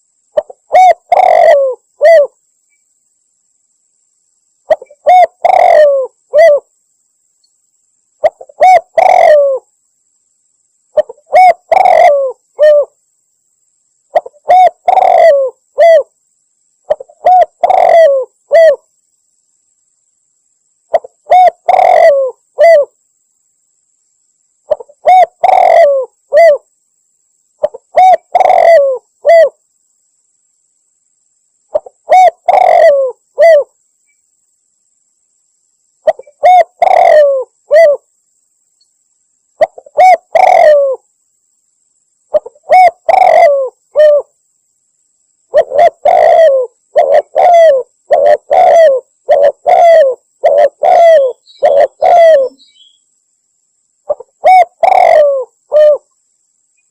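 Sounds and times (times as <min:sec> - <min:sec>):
dove cooing: 0:00.4 - 0:02.4, 0:04.7 - 0:06.7, 0:08.2 - 0:09.7, 0:11.0 - 0:13.0, 0:14.1 - 0:16.1, 0:16.9 - 0:18.8, 0:20.9 - 0:23.0, 0:24.7 - 0:26.7, 0:27.6 - 0:29.6, 0:31.7 - 0:33.7, 0:36.0 - 0:38.1, 0:39.6 - 0:41.0, 0:42.3 - 0:44.3, 0:45.5 - 0:52.9, 0:54.1 - 0:56.1.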